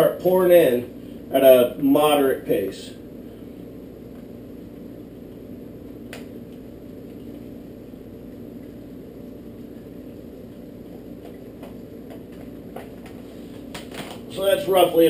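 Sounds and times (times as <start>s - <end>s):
low hum: 0.0s - 15.0s.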